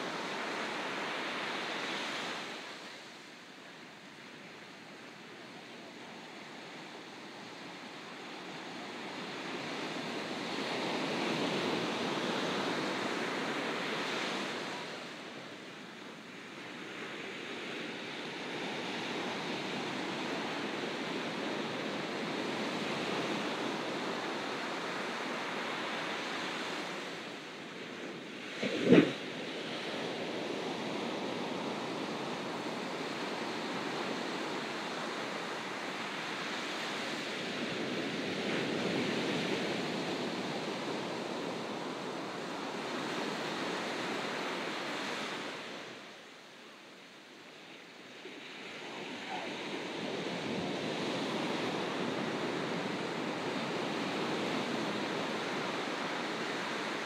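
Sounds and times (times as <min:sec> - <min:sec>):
ocean surf rushing: 0:24.6 - 0:31.9.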